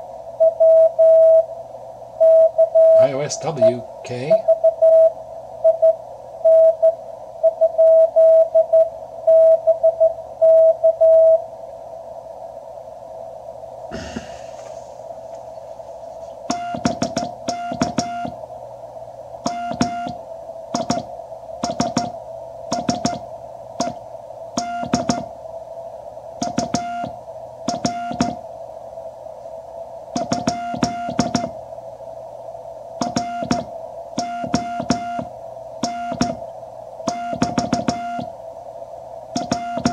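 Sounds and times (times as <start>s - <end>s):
radio band noise hiss: 2.9s - 4.5s, 13.8s - 35.4s
morse code tone: 16.5s - 18.4s, 19.5s - 20.2s, 20.8s - 23.2s, 23.8s - 24.0s, 24.6s - 25.3s, 26.4s - 28.4s, 30.2s - 31.5s, 33.0s - 36.4s, 37.1s - 38.3s, 39.4s - 39.9s
morse sidetone beeps: 16.5s - 18.4s, 19.5s - 20.2s, 20.8s - 23.2s, 23.8s - 24.0s, 24.6s - 25.3s, 26.4s - 28.4s, 30.2s - 31.5s, 33.0s - 36.4s, 37.1s - 38.3s, 39.4s - 39.9s.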